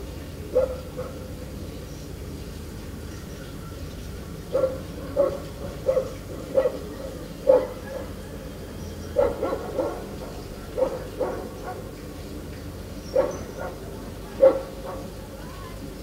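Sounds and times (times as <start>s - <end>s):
dog barking: 0.5s - 1.3s, 4.5s - 8.2s, 9.2s - 11.9s, 13.1s - 15.1s.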